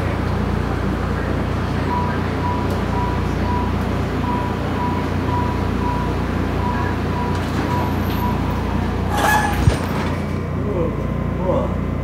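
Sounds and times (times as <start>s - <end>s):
subway car low hum: 0.0s - 12.0s.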